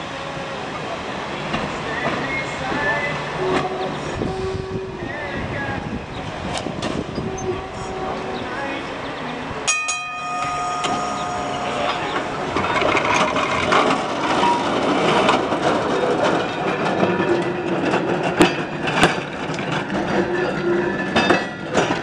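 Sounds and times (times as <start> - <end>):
streetcar wheels rumbling on rails: 0.0 - 22.0
streetcar gong ringing: 9.1 - 15.8.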